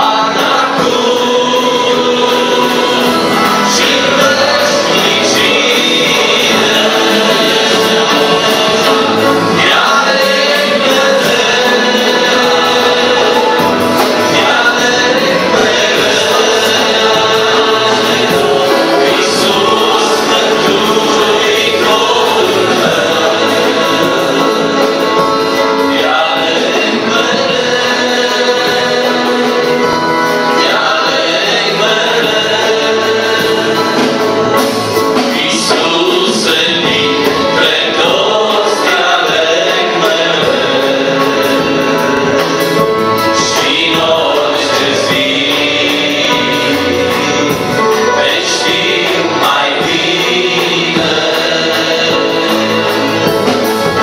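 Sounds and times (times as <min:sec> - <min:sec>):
accordion: 0:00.0 - 0:54.0
drums: 0:00.0 - 0:54.0
male vocal group singing: 0:00.0 - 0:54.0.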